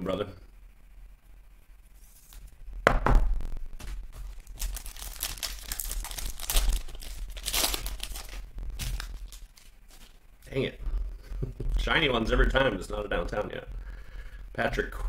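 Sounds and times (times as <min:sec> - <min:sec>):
plastic wrapper tearing and crinkling: 0:03.7 - 0:10.2.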